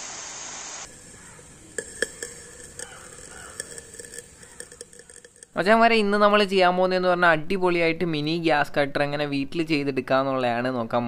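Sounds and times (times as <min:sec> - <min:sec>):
faint crackling and sharp clicks: 0:01.2 - 0:05.6.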